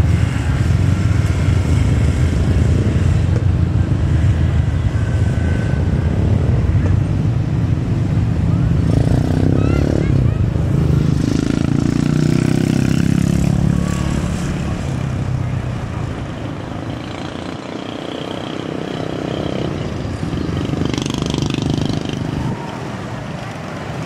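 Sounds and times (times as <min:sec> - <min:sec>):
motorcycle and car engines: 0:00.0 - 0:24.0
traffic noise: 0:00.0 - 0:24.0.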